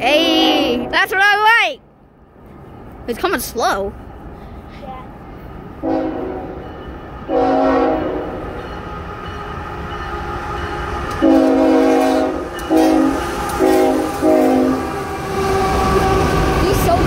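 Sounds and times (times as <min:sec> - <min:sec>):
train rumbling: 0:00.0 - 0:17.0
locomotive air horn blasts: 0:05.8 - 0:06.6, 0:07.3 - 0:08.4, 0:11.2 - 0:16.2.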